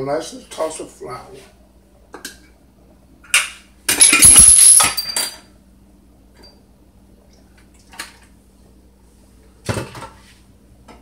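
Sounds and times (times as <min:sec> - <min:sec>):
metal kitchenware clattering: 0:03.3 - 0:05.5.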